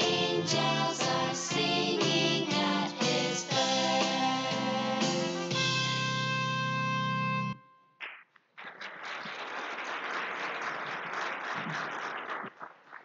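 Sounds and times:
audience applauding: 0:08.0 - 0:13.0.

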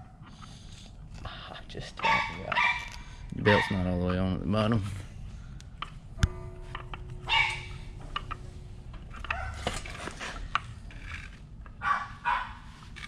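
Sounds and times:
ringing metal clink: 0:05.8 - 0:11.3.

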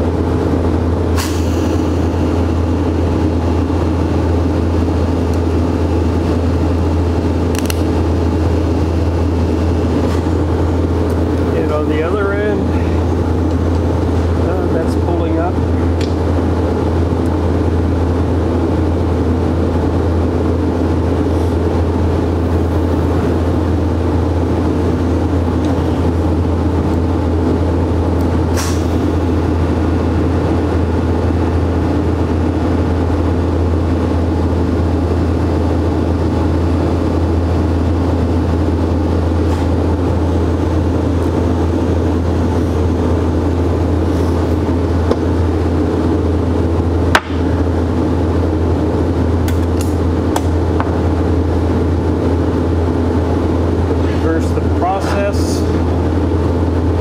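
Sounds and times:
low machine drone: 0:00.0 - 0:57.0
sharp click: 0:07.5 - 0:07.9.

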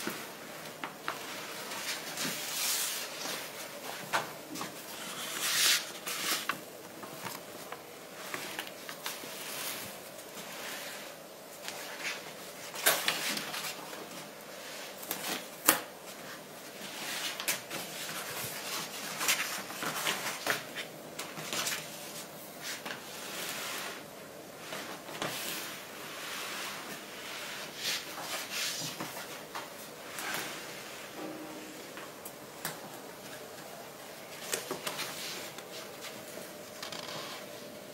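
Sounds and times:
plastic film and paper rustling: 0:00.0 - 0:24.0.

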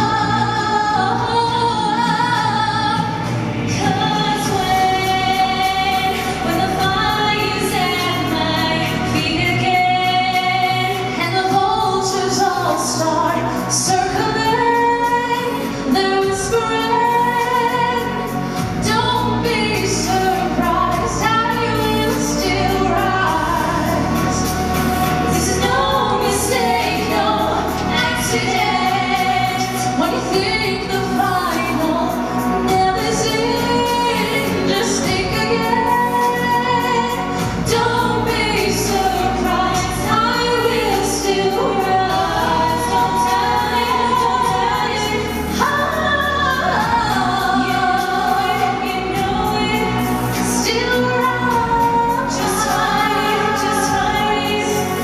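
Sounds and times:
women singing a duet: 0:00.0 - 0:55.0.

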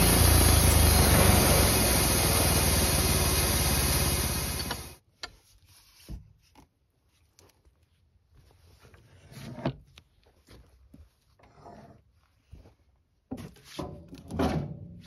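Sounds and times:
band saw cutting log: 0:00.0 - 0:05.0.

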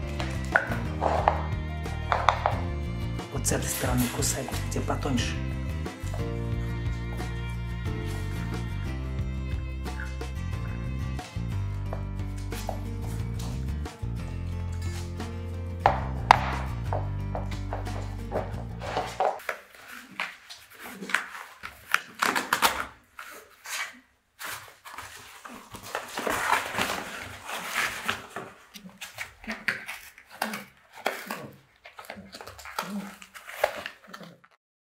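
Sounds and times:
puppy chewing cardboard: 0:00.0 - 0:02.7, 0:16.0 - 0:34.6
cardboard crackling and rustling: 0:17.5 - 0:34.6.

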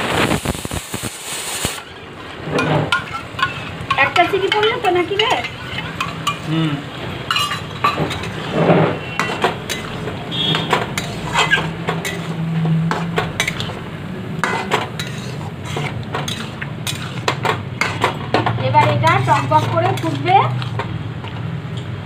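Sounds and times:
metal spatula scraping wok: 0:01.5 - 0:20.9.

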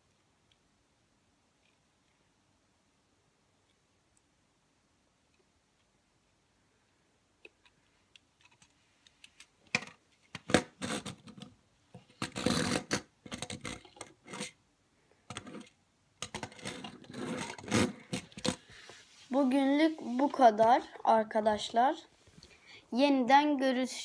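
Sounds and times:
plastic toy kart clicks and rattles: 0:12.2 - 0:14.6
small wheels scraping on table: 0:12.2 - 0:14.6, 0:16.4 - 0:19.3.

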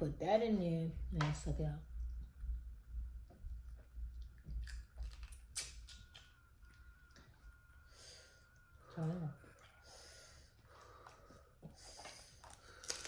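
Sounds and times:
soft low thuds: 0:00.9 - 0:04.6
chewing: 0:03.6 - 0:07.6, 0:08.6 - 0:13.0
crawfish shells cracking: 0:04.6 - 0:06.4, 0:12.4 - 0:13.0.

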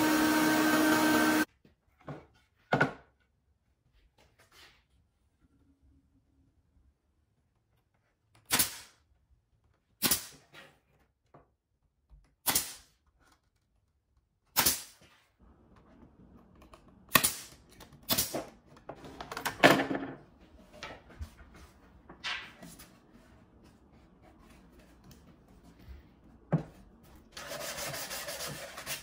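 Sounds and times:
nail gun firing: 0:08.5 - 0:08.9, 0:10.0 - 0:10.3, 0:12.4 - 0:12.8, 0:14.6 - 0:14.9.

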